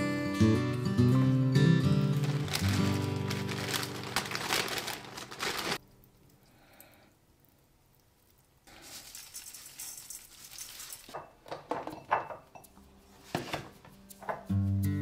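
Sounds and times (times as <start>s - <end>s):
soft rustle: 2.2s - 5.8s, 8.7s - 11.2s
light clinks and knocks: 9.4s - 12.8s.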